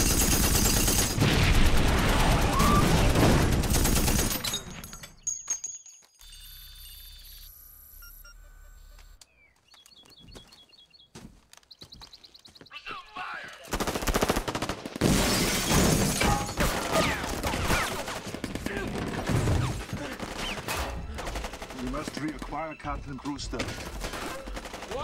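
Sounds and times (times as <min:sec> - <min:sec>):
heavy gunfire: 0:00.0 - 0:04.4, 0:23.8 - 0:25.0.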